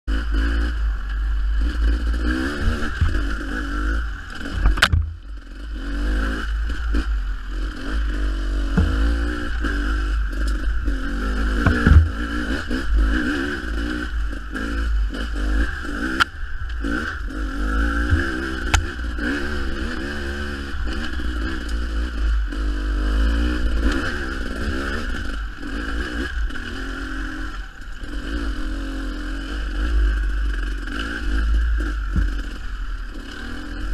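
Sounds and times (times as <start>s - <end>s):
dirt bike engine revving: 0.1s - 33.9s
bike scraping and knocking on ground: 4.4s - 5.2s, 8.6s - 9.6s, 11.6s - 12.7s, 17.9s - 19.0s
wind rumbling on microphone: 8.5s - 13.0s.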